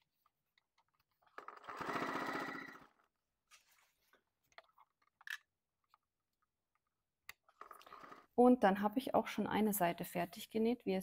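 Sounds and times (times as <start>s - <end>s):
sewing machine stitching: 1.3s - 3.0s, 7.5s - 8.4s.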